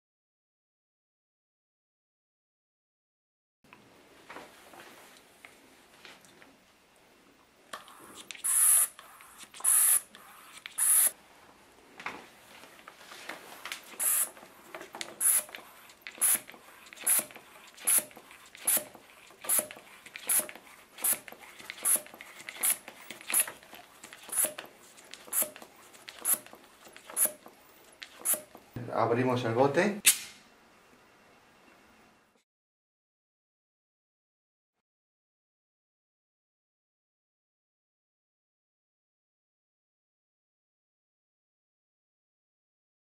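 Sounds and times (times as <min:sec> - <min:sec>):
vacuum pump squeaky air hiss: 0:07.8 - 0:11.2, 0:13.8 - 0:28.8.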